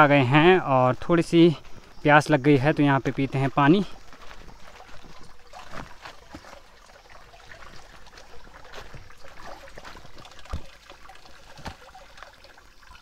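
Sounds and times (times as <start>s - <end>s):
water trickling: 0.0s - 13.0s
hands splashing water: 4.6s - 12.6s.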